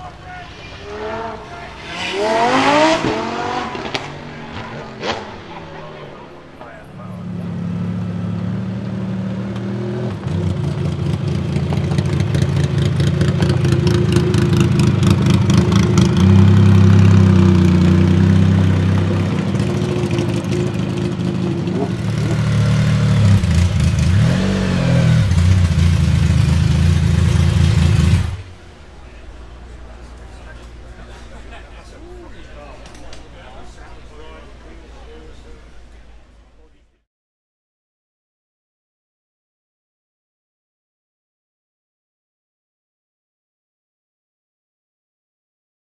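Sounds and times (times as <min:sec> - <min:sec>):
engine rev blip: 0:00.0 - 0:08.2
car engine at low revs: 0:00.1 - 0:32.5.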